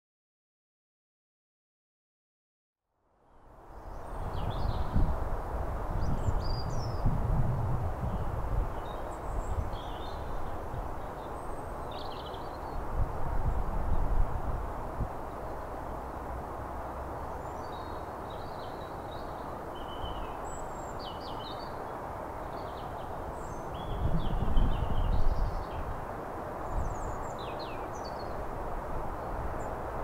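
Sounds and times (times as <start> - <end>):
small birds chirping: 3.8 - 5.1, 6.0 - 7.1, 8.0 - 12.9, 17.2 - 26.0, 26.6 - 28.5.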